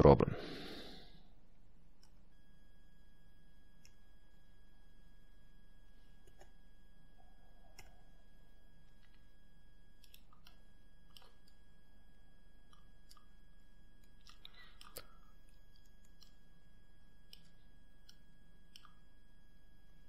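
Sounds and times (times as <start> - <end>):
low steady hum: 0.0 - 20.0
thin high whine: 0.0 - 20.0
mouse and keyboard clicks: 6.2 - 6.5, 7.7 - 8.0, 10.0 - 11.6.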